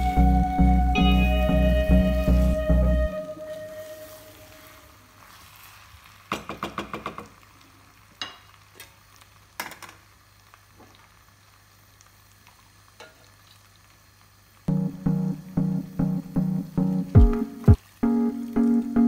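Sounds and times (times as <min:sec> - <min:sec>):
faint sizzle: 0:00.0 - 0:19.0
wooden spatula scraping a pot: 0:04.0 - 0:06.0.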